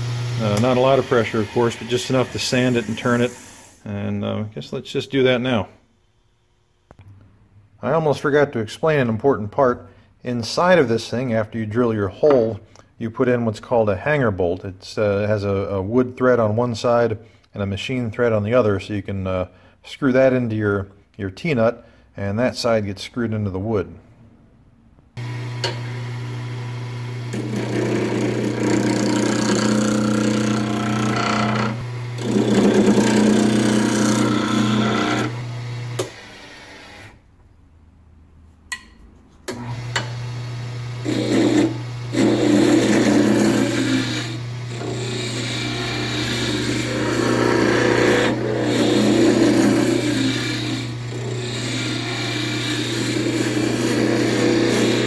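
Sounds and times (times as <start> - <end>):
lathe motor humming: 0.0 - 3.0, 25.2 - 36.2, 39.5 - 55.0
gouge scraping spinning wood: 27.3 - 35.4, 41.0 - 55.0.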